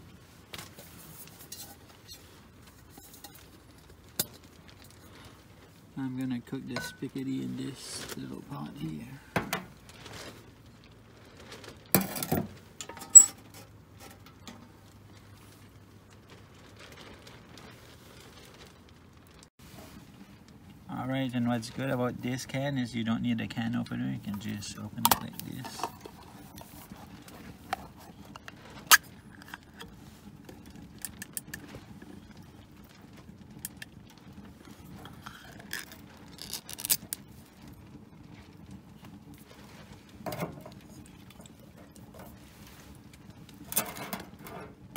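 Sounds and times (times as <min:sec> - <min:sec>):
metal clatter: 0:06.7 - 0:07.2, 0:11.9 - 0:14.8, 0:43.6 - 0:44.9
can lid scraping: 0:25.0 - 0:29.9.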